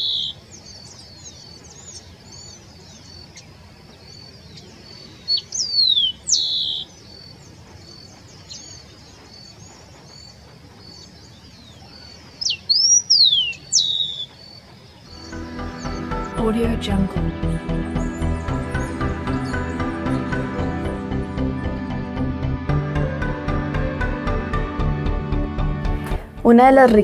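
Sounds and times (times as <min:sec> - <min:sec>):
sparrow singing: 0:00.0 - 0:22.4.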